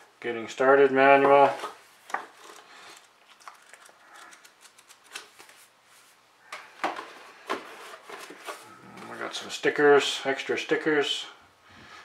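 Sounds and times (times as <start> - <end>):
paper and card rustling: 1.2 - 9.5.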